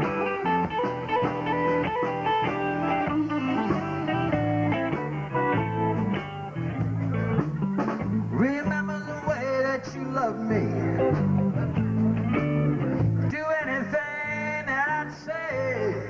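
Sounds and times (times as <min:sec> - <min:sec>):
electric guitar lines: 0:00.0 - 0:16.0
live blues band: 0:00.0 - 0:16.0.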